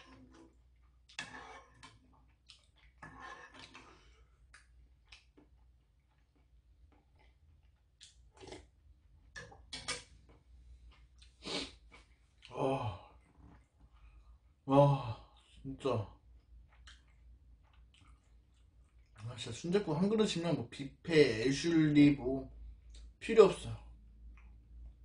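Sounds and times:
person slurping and chewing: 0.0s - 8.7s, 10.8s - 12.6s.

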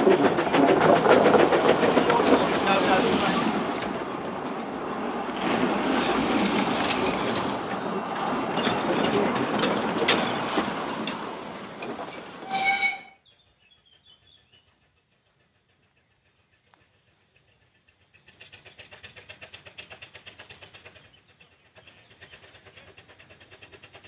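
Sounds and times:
train rumbling over rails: 0.0s - 24.0s
clicks at rail joints: 3.8s - 12.5s
steam whistle blast: 12.4s - 13.2s.

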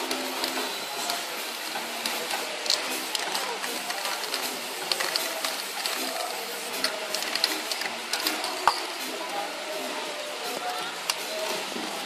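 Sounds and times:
spray can mixing ball rattling: 0.0s - 9.3s
spray can hissing: 0.3s - 9.1s.

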